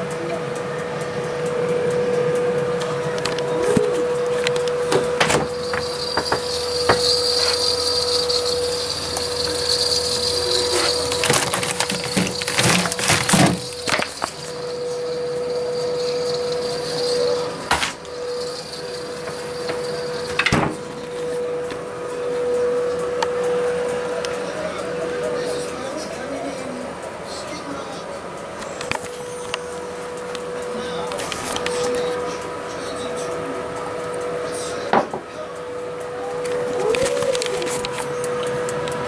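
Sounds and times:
fridge hum: 0.0 - 39.0
knocks and clatter in fridge: 11.2 - 14.2, 20.4 - 20.8.

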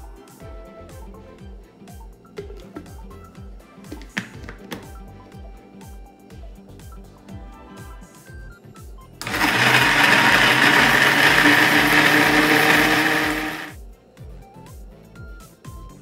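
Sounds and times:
background music with steady beat: 0.0 - 16.0
electric blender running: 9.2 - 13.8.

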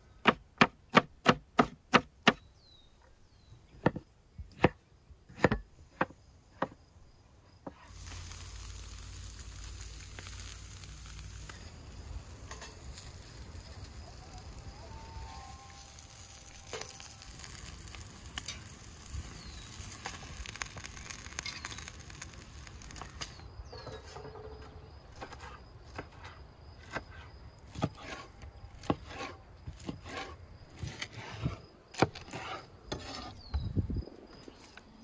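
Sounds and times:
food sizzling: 7.8 - 23.5.

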